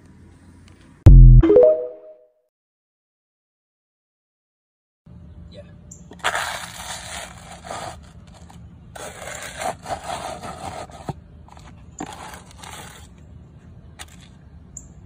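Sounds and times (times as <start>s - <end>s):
gritty scraping on concrete: 6.1s - 13.2s.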